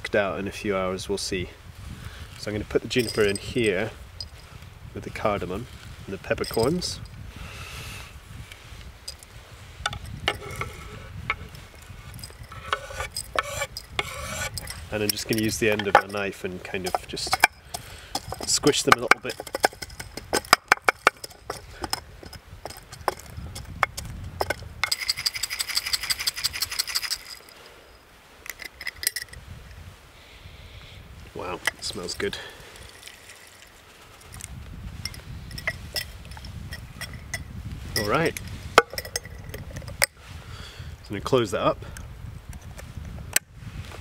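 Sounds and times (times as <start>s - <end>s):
glass clinks: 2.9s - 4.4s, 35.0s - 38.2s, 38.8s - 40.0s
spices rattling in glass jar: 2.9s - 4.4s, 9.9s - 27.6s, 28.5s - 29.4s, 31.7s - 38.1s, 38.8s - 40.1s
berries clicking on wood and glass: 12.2s - 27.4s.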